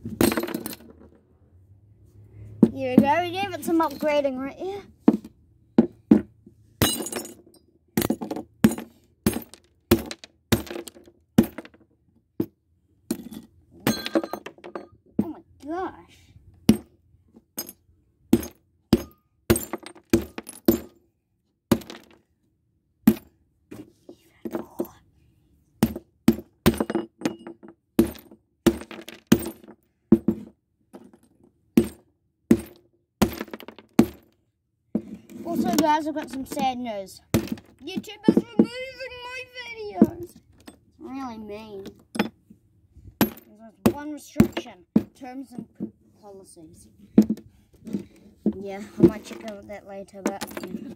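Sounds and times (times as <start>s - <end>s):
glass pieces clinking: 13.1s - 14.9s.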